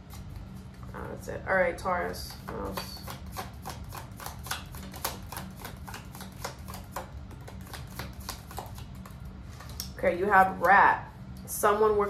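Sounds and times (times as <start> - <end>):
cards being shuffled: 2.3 - 9.9.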